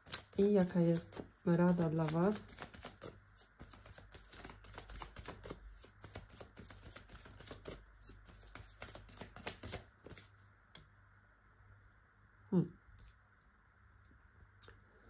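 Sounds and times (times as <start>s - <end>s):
cards being shuffled: 0.0s - 10.4s.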